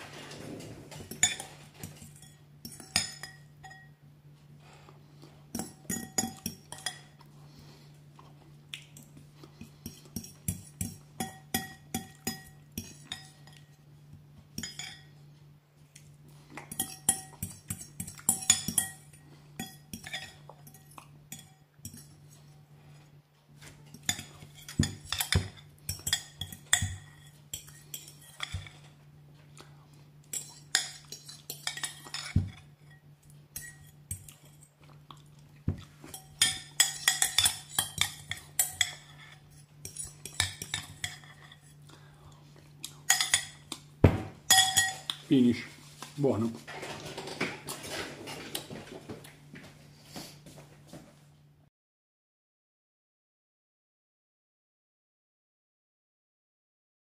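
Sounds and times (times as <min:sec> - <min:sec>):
metal fork clinking on ceramic bowl: 0:01.1 - 0:04.0, 0:05.6 - 0:07.1, 0:10.2 - 0:13.7, 0:14.6 - 0:15.2, 0:16.7 - 0:22.2, 0:23.9 - 0:28.8, 0:30.3 - 0:34.3, 0:36.1 - 0:41.7, 0:43.1 - 0:43.7, 0:44.5 - 0:45.2.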